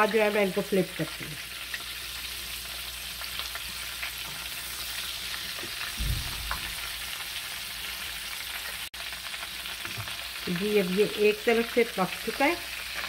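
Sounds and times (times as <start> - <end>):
fish frying in hot oil: 0.0 - 13.0
short low bump: 6.0 - 7.0.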